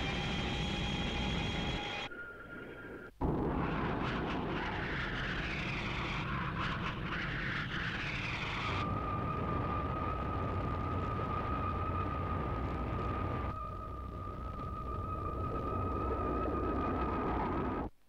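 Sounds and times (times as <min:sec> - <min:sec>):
spacecraft engine roar: 0:00.0 - 0:02.1.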